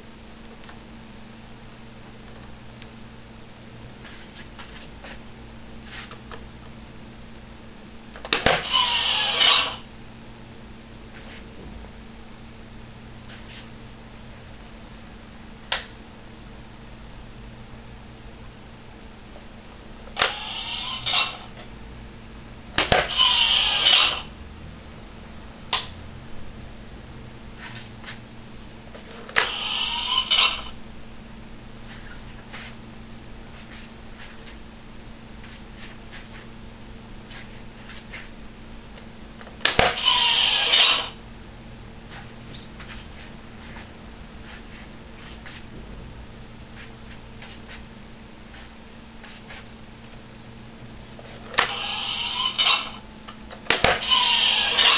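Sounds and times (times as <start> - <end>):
toy electronic harsh blast: 8.5 - 9.8, 22.8 - 24.3, 39.8 - 41.2, 53.8 - 54.9.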